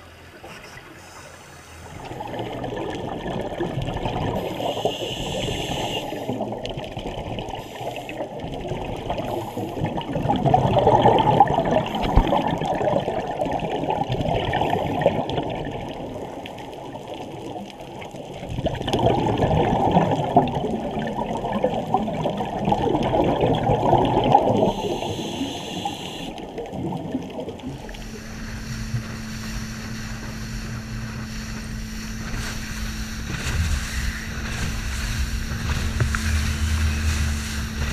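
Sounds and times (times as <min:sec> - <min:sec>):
wind: 0:00.0 - 0:10.5, 0:24.1 - 0:37.9
boat engine hum: 0:00.0 - 0:13.4, 0:24.6 - 0:37.9
underwater bubbles rushing: 0:00.0 - 0:37.9
water splashing: 0:00.3 - 0:25.2, 0:26.2 - 0:37.9.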